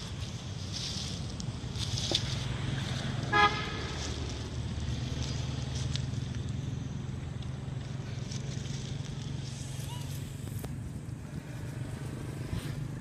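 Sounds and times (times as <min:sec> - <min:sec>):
two-tone vehicle horn beep: 0:03.3 - 0:03.7.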